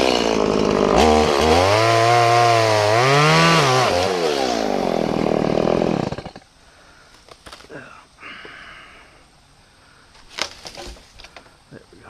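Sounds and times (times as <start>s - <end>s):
chainsaw revving and idling: 0.0s - 6.5s.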